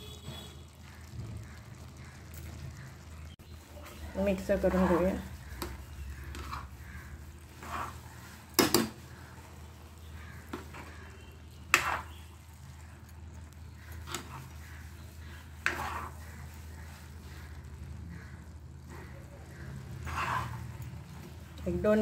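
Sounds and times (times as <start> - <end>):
metal spatula scraping pan: 3.9 - 9.4, 10.4 - 12.4, 13.8 - 17.6, 19.0 - 21.6
spatula clanking on pan: 8.5 - 9.0, 11.7 - 12.1.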